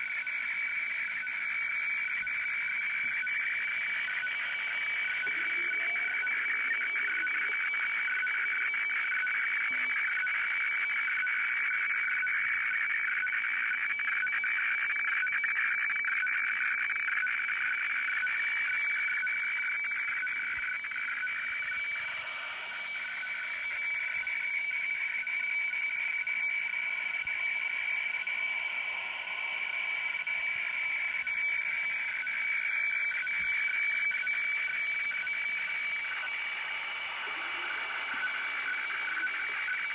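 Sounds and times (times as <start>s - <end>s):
rasping noisy radio signal: 0.0s - 18.0s, 19.9s - 25.6s, 26.4s - 39.9s
high whistling tone: 4.2s - 8.7s.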